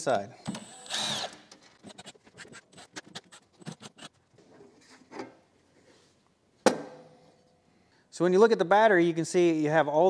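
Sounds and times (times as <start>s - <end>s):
screws and tools rattling on metal: 0.7s - 4.2s.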